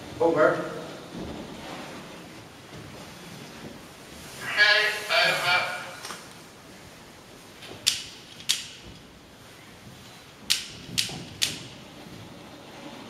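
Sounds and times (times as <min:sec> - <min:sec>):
gun mechanism clicks: 0:07.8 - 0:08.8.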